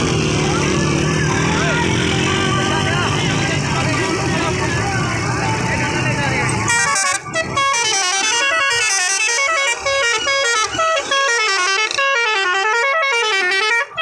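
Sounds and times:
musical vehicle horn tune: 6.6 - 14.0.

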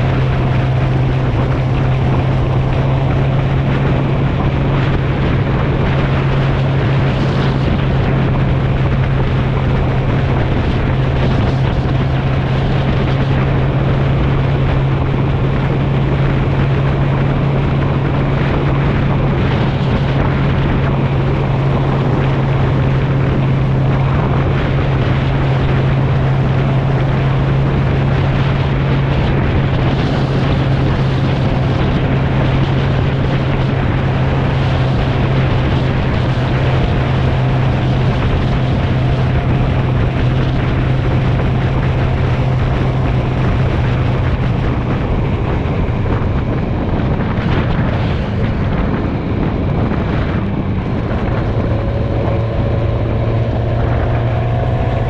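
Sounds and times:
motorcycle engine cruising: 0.0 - 55.0
wind and road noise: 0.0 - 55.0.

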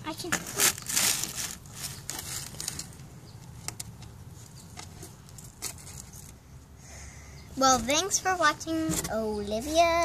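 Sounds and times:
rustling in cardboard box: 0.3 - 3.0.

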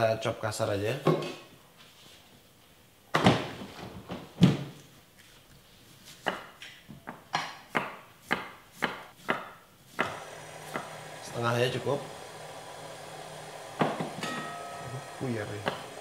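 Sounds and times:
knife chopping on wooden board: 7.4 - 11.0, 13.7 - 14.5.

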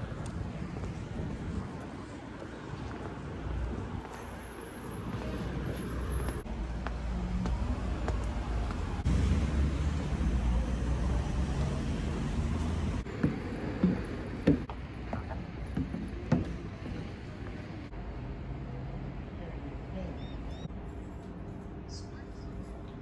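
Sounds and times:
traffic rumble: 0.0 - 23.0.

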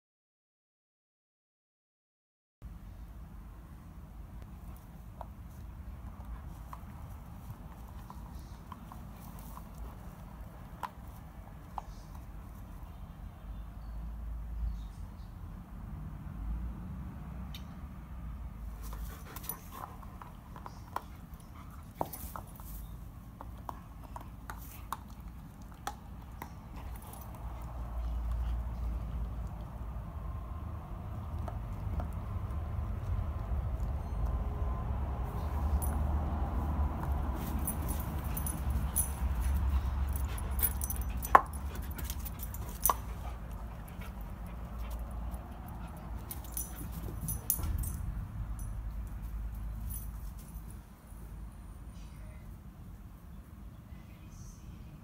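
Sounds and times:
dog chewing a tennis ball: 31.0 - 34.3, 36.9 - 46.4
jingling clicks: 37.0 - 50.7.

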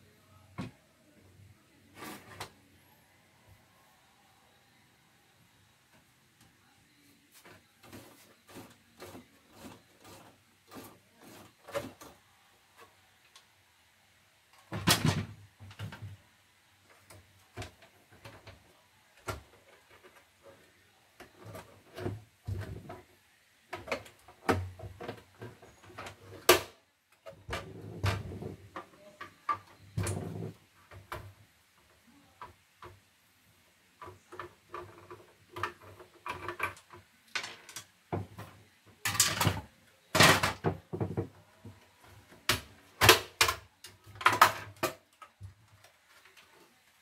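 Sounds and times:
plastic clatter: 42.4 - 45.5.

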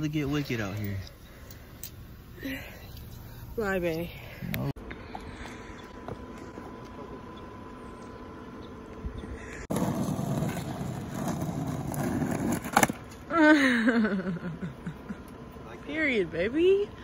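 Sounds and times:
faint outdoor background noise: 0.0 - 17.0
skateboard rolling on asphalt: 9.6 - 13.3
skateboard clack: 9.7 - 13.2.

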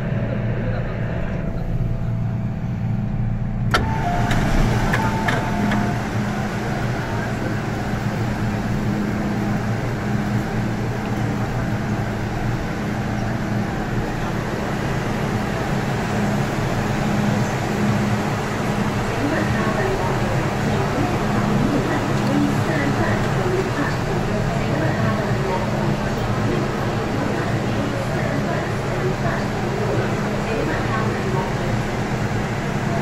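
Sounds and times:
passengers moving: 0.0 - 33.0
train low hum: 0.0 - 33.0
brief tone: 3.8 - 6.1.

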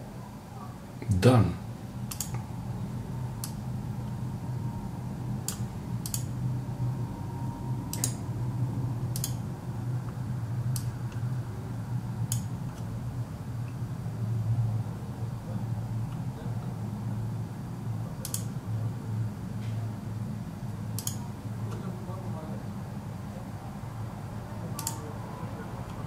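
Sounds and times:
steady low hum: 0.0 - 26.0
computer mouse clicking: 2.1 - 2.4, 3.4 - 3.6, 5.4 - 6.3, 7.9 - 8.2, 9.1 - 9.4, 18.2 - 18.5, 21.0 - 21.2.

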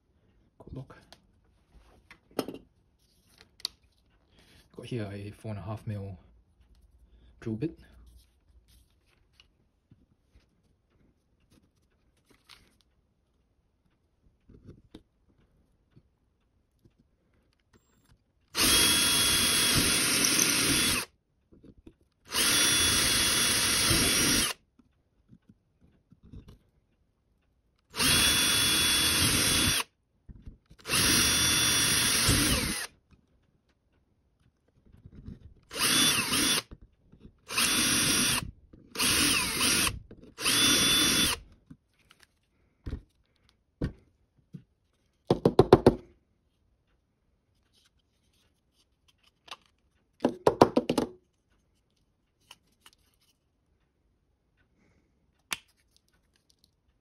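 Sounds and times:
cordless drill drilling plastic: 18.6 - 21.1, 22.3 - 24.6, 27.9 - 29.9, 30.8 - 33.0, 35.6 - 36.8, 37.4 - 41.5.

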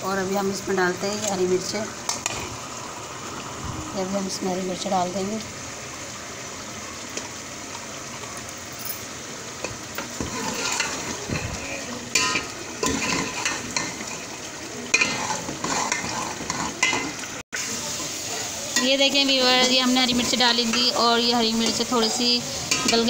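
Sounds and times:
meat sizzling in oil: 0.1 - 23.0
metal spoon scraping a pot: 10.0 - 11.2, 12.1 - 14.2, 15.0 - 17.1.

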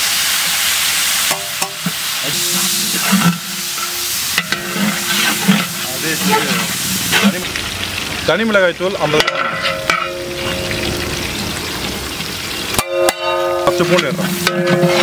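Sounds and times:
vegetables sizzling in hot oil: 0.0 - 15.0
ladle scraping metal pot: 1.3 - 7.5, 9.1 - 11.4, 12.8 - 15.0.

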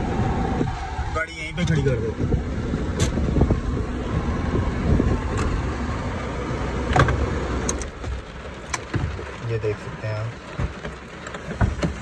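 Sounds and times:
car interior rumble: 0.0 - 12.0
heavy rain: 3.8 - 12.0.

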